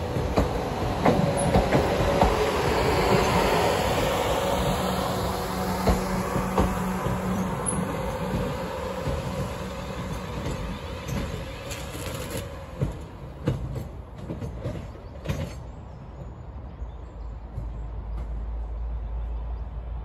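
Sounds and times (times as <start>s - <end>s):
train wheels knocking over rail joints: 0.0s - 15.7s
train humming: 0.0s - 20.0s.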